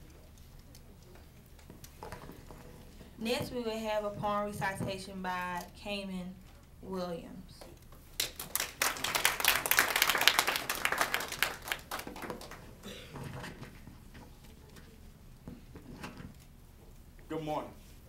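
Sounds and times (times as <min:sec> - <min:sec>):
audience clapping: 0:08.2 - 0:12.7.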